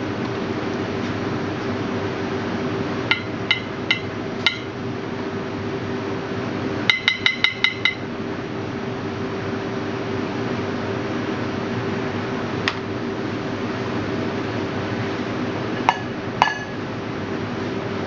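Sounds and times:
ventilation hum: 0.0s - 18.0s
metal spoon tapping: 3.1s - 4.7s, 6.9s - 8.0s.

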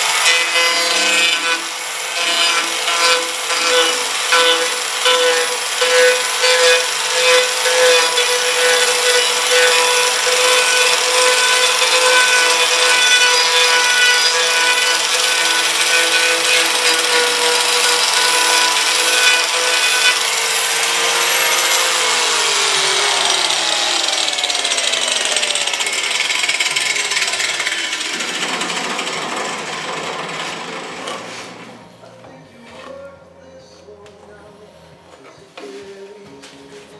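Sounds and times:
grinder disc rasping on wood: 0.0s - 22.0s
angle grinder motor whine: 21.5s - 31.2s.

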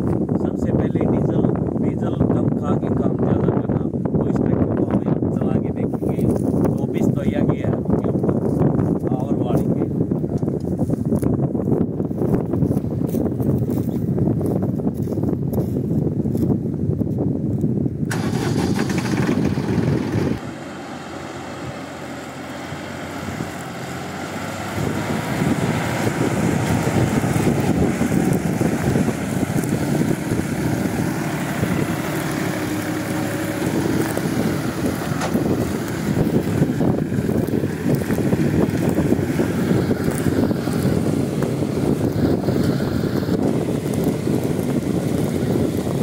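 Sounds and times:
disc harrow through stubble: 5.9s - 46.0s
tractor diesel engine running: 18.1s - 46.0s.

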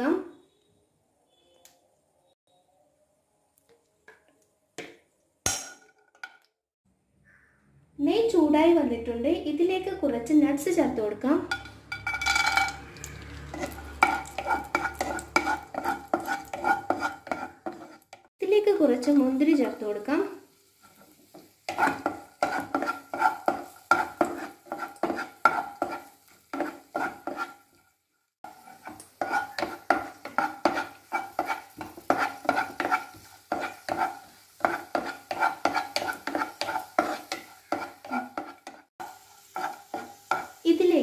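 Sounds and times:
light sizzle: 10.6s - 41.0s
wooden spatula scraping a pan: 12.3s - 18.3s, 19.0s - 40.9s.

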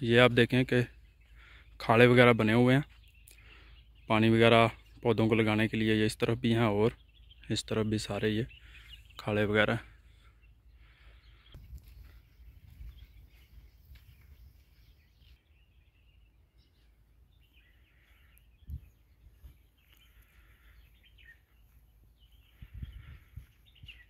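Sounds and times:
faint bird chirps: 6.2s - 24.0s
wind rumble on microphone: 11.6s - 14.7s, 18.6s - 19.6s, 22.2s - 24.0s.

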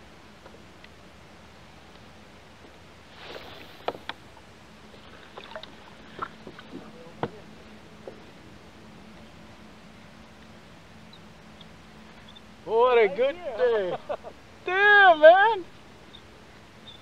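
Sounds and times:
faint steady hum: 0.0s - 17.0s
soft rush: 2.9s - 8.5s.

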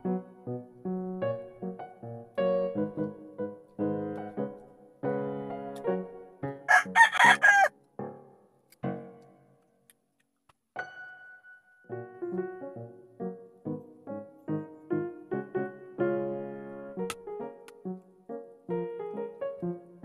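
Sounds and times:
piano music: 0.0s - 9.4s, 10.8s - 20.0s
rooster crowing: 6.7s - 7.7s.

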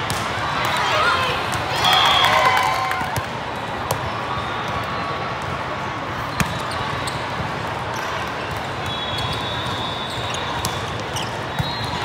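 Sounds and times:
volleyball slaps: 0.0s - 0.8s.

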